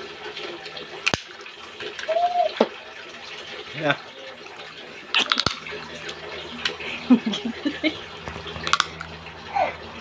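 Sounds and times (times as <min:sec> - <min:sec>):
clicks of lips and shell: 0:05.2 - 0:05.6, 0:08.3 - 0:09.1.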